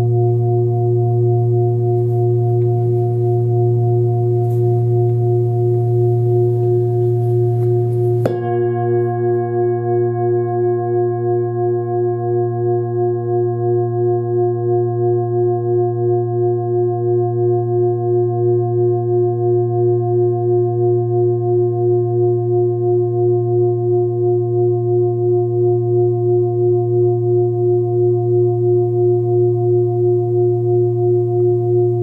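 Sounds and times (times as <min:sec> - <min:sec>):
singing bowl deep pulsing hum: 0:00.0 - 0:32.0.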